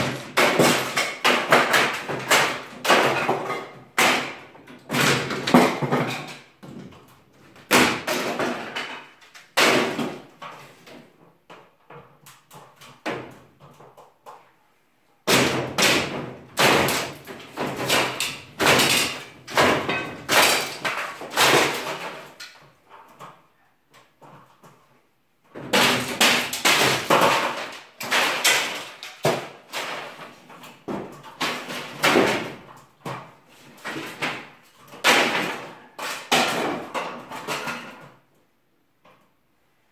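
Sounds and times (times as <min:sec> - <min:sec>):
wooden boards banging and cracking: 0:00.0 - 0:14.4, 0:15.2 - 0:38.3.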